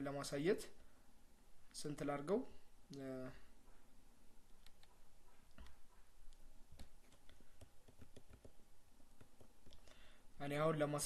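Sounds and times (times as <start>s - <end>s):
faint computer mouse clicks: 4.5s - 8.5s.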